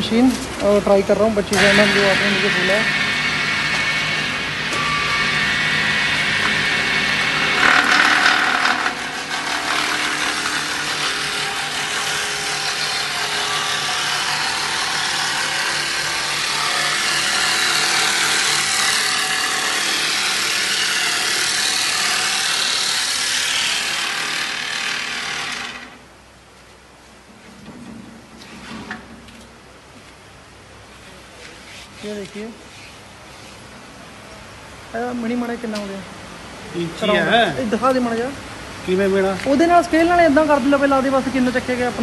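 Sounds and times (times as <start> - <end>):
dowel machine cutting wood: 4.8 - 26.0.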